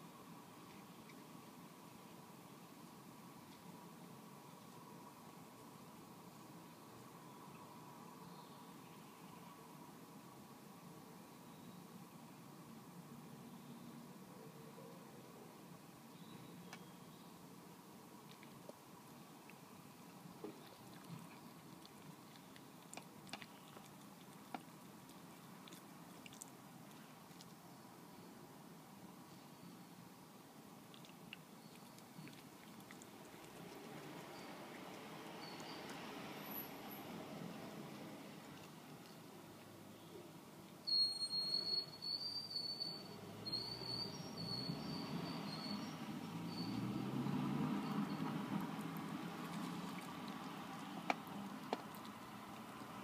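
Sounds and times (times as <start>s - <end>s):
fox crunching food: 19.4s - 27.6s, 30.8s - 36.0s, 48.6s - 52.9s
thin high whistle: 40.8s - 45.9s.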